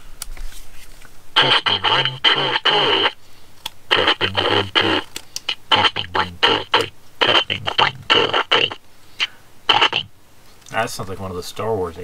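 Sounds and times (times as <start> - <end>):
deep electronic disguised voice: 1.4 - 3.2, 3.9 - 8.8, 9.7 - 10.1.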